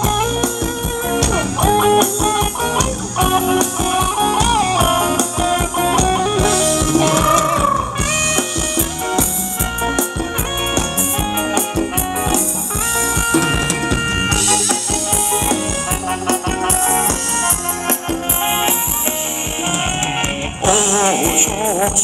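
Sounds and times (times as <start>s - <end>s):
drum kit steady beat: 0.0s - 22.0s
held melody notes: 0.0s - 22.0s.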